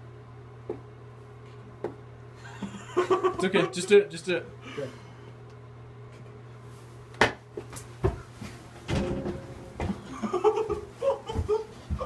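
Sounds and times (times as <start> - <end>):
people grappling and thumping: 7.6 - 12.0
stifled giggles: 10.0 - 12.0.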